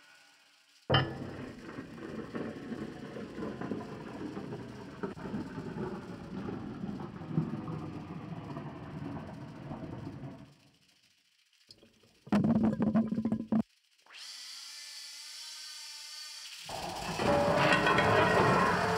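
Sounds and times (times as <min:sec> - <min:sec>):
rumbling rattling engine-like noise: 0:00.7 - 0:13.6, 0:16.7 - 0:18.9
scattered knocks: 0:00.9 - 0:08.5.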